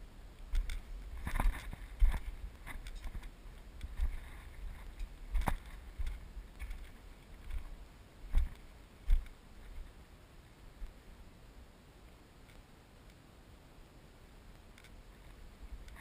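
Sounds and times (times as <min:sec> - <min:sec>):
footsteps crunching on gravel: 0:01.2 - 0:09.3.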